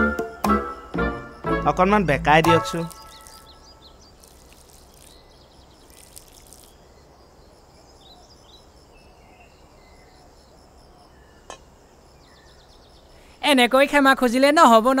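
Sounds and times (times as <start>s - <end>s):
insect chirring: 0.2s - 15.0s
bird chirps: 0.3s - 10.3s.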